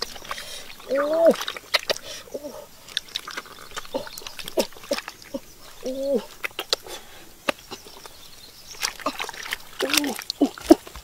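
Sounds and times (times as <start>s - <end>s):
hands digging through wet mud: 0.0s - 11.0s.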